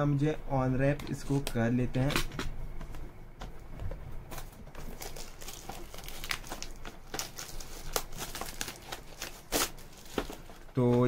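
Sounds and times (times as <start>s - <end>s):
plastic wrapping tearing and crinkling: 4.3s - 10.8s.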